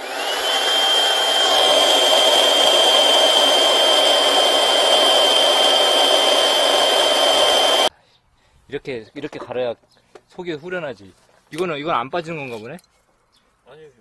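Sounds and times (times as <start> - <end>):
blower whining: 0.0 - 7.9.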